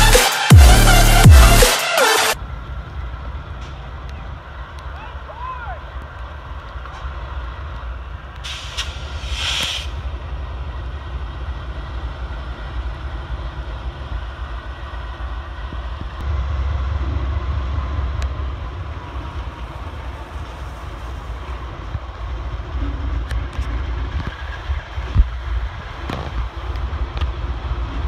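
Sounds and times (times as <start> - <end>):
diesel locomotive rumble: 2.4 - 28.0
train wheels on rails: 2.4 - 28.0
burst of hiss: 8.4 - 10.0.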